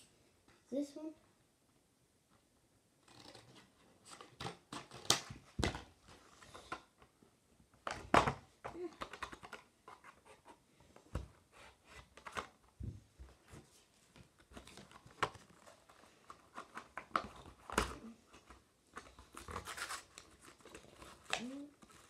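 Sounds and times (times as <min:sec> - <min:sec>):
scissors snipping packaging: 0:19.0 - 0:22.0.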